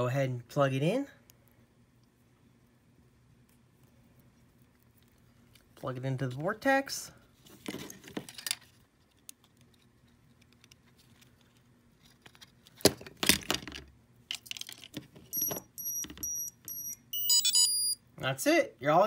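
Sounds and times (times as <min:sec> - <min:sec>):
short high electronic beeps: 0:15.4 - 0:18.0.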